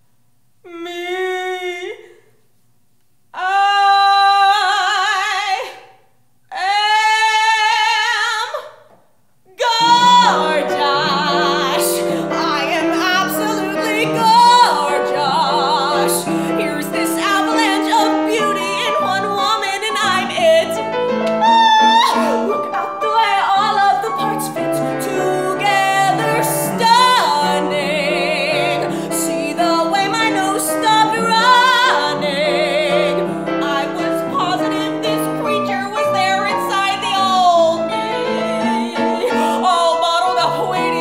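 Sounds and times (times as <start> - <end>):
woman singing operatic style: 0.6 - 2.2, 3.3 - 8.9, 9.5 - 41.0
piano accompaniment: 9.6 - 41.0.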